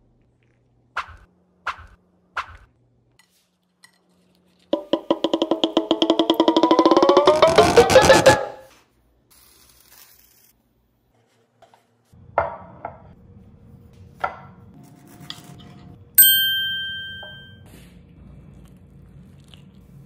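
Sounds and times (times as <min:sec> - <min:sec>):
ceramic plate knocking on wood: 0:04.8 - 0:06.8
bright bell-like ding: 0:16.2 - 0:17.6.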